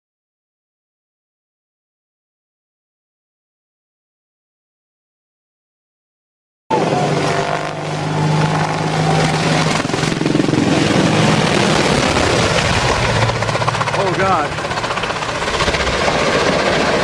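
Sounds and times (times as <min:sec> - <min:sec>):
helicopter flying close by: 0:06.7 - 0:17.0.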